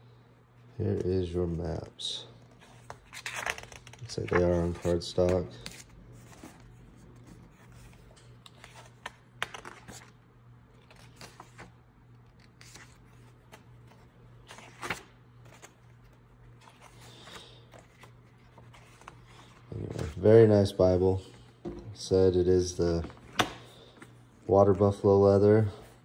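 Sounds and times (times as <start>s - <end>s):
pages rustling and flicking: 2.6s - 20.2s.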